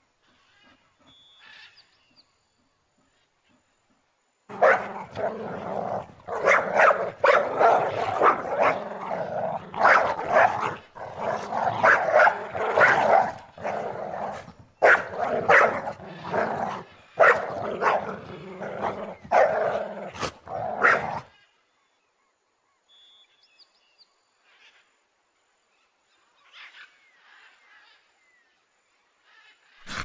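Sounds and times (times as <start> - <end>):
dogs growling and barking: 4.5 - 21.3.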